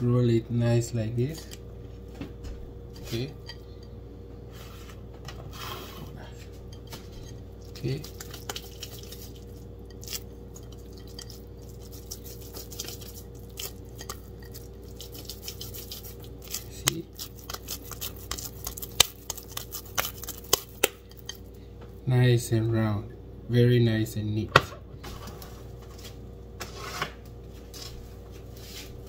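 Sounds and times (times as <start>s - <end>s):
steady low hum: 0.0s - 29.0s
wet hands patting dough: 6.9s - 21.4s.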